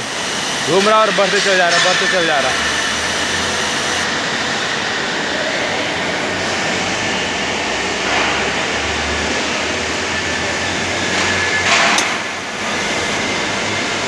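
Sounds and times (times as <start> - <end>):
steady machine noise: 0.0 - 14.0
welding wire feeder running: 0.0 - 14.0.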